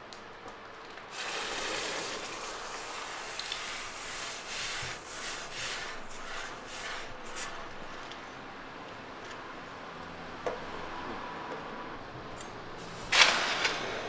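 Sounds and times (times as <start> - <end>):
hot blade hissing in water: 1.1 - 7.6.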